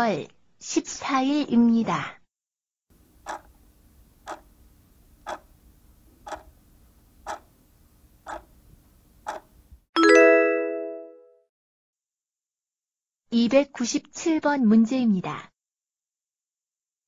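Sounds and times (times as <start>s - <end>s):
clock ticking: 3.2s - 3.6s, 4.2s - 4.5s, 5.2s - 5.5s, 6.2s - 6.5s, 7.2s - 7.5s, 8.3s - 8.5s, 9.3s - 9.5s
bright chime ringing: 10.0s - 11.3s.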